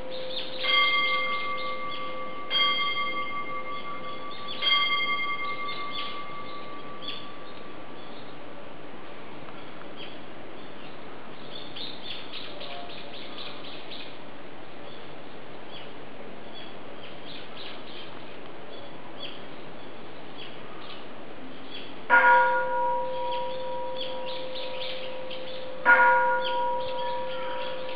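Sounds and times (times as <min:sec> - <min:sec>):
temple bell ringing: 0:00.0 - 0:08.1, 0:22.1 - 0:27.9
birds chirping: 0:00.0 - 0:08.4, 0:23.1 - 0:27.9
steady background hiss: 0:00.0 - 0:27.9.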